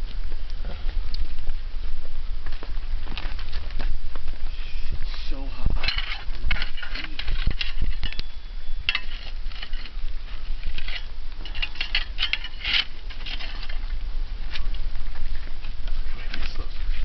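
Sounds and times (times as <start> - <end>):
fire crackling: 0.0 - 17.0
metal tool clinking on rocks: 5.8 - 13.8.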